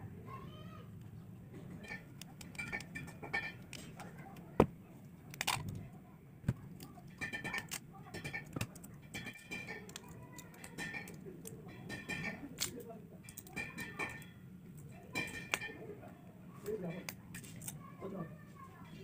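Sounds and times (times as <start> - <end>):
plastic parts clicking and tapping: 1.0 - 14.2.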